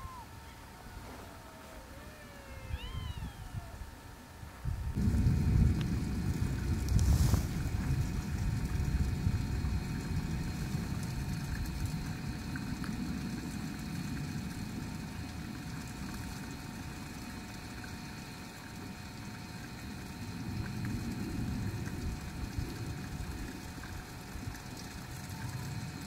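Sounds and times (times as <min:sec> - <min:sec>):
faint high tones: 0:00.0 - 0:03.8
low outdoor rumble: 0:00.0 - 0:26.0.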